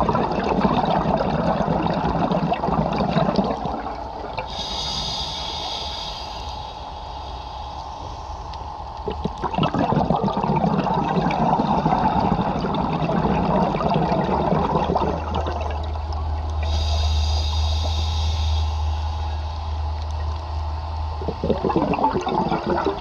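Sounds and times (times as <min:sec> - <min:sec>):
exhaled bubbles rushing: 0:00.0 - 0:04.6, 0:09.0 - 0:16.8, 0:21.2 - 0:23.0
low steady hum: 0:00.0 - 0:23.0
regulator breathing hiss: 0:04.4 - 0:09.2, 0:16.6 - 0:20.1.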